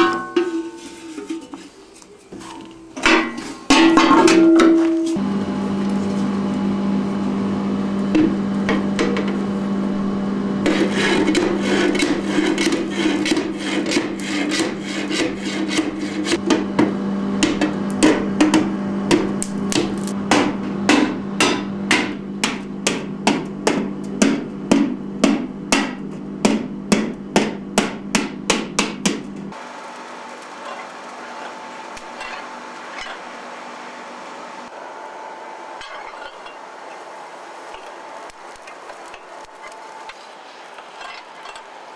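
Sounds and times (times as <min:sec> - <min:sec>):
metal knocking and scraping: 0:00.0 - 0:05.2, 0:10.7 - 0:16.7, 0:31.4 - 0:33.2, 0:35.8 - 0:36.6, 0:40.8 - 0:41.8
forge humming: 0:00.0 - 0:41.9.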